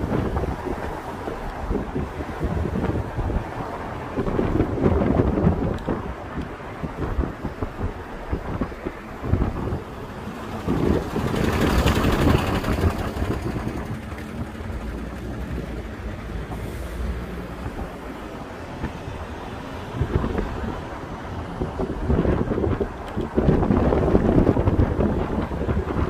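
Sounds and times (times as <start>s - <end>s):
wind rumbling on microphone: 0.0s - 26.0s
vehicle passing with tyre hiss: 10.0s - 20.1s.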